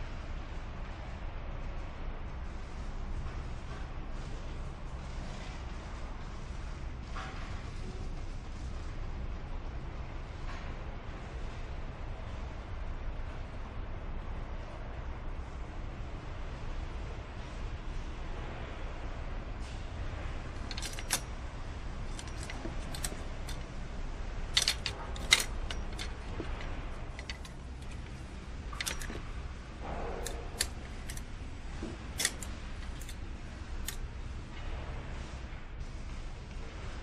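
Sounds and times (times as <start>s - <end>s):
low factory hum: 0.0s - 37.0s
metallic clicks of tools and parts: 20.6s - 21.4s, 22.0s - 23.7s, 24.5s - 29.3s, 29.9s - 33.2s, 33.8s - 34.1s.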